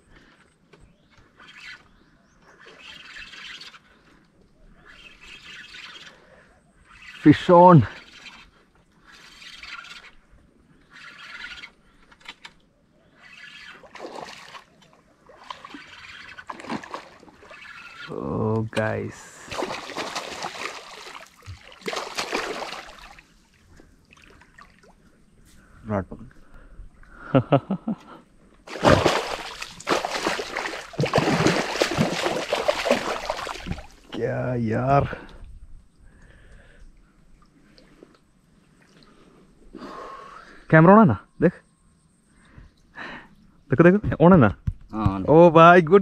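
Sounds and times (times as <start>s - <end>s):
reel clicks: 8.0s - 18.8s
fish splashing in shallow water: 13.1s - 18.2s, 19.4s - 25.0s, 28.7s - 34.1s.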